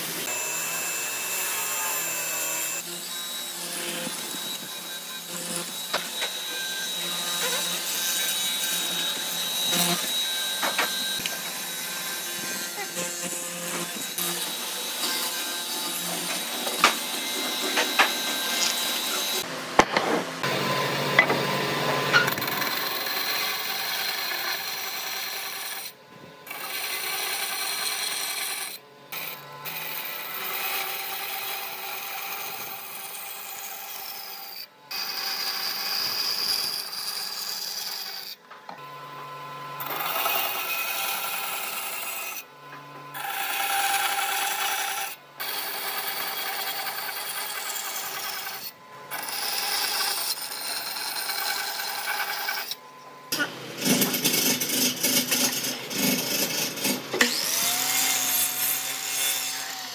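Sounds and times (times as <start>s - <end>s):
bandsaw cutting wood: 0.0s - 59.9s.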